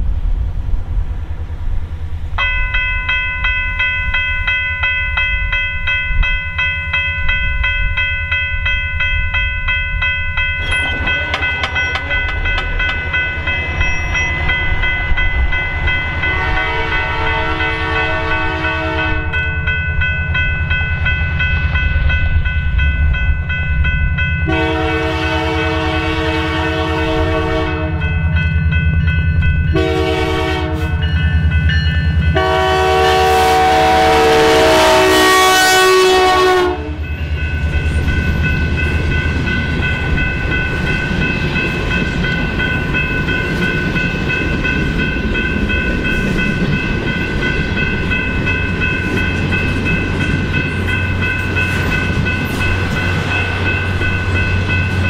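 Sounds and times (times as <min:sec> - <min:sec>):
locomotive and wheels rumbling: 0:00.0 - 0:55.0
locomotive horn blasts: 0:16.2 - 0:19.4, 0:24.4 - 0:28.1, 0:29.7 - 0:31.0, 0:32.3 - 0:37.1.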